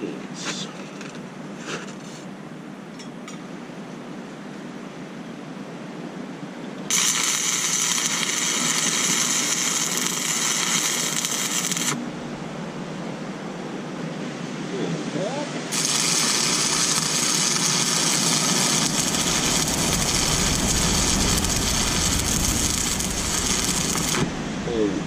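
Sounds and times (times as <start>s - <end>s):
stick welding arc: 6.9s - 12.0s, 15.7s - 24.4s.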